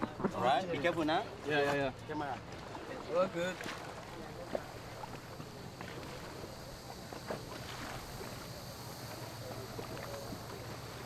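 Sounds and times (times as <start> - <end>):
water lapping: 0.0 - 11.0
steady low hum: 3.7 - 11.0.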